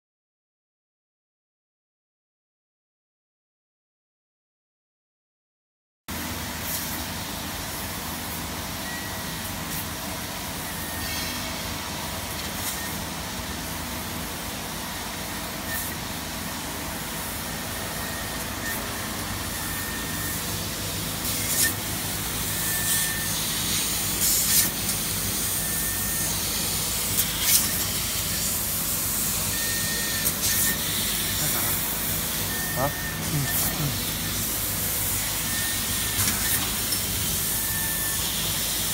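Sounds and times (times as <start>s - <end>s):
machinery hum and hiss: 6.1s - 38.9s.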